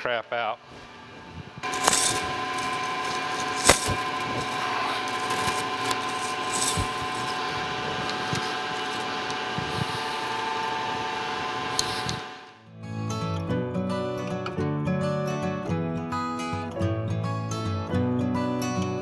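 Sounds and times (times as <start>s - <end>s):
metal lathe humming: 1.6s - 12.6s.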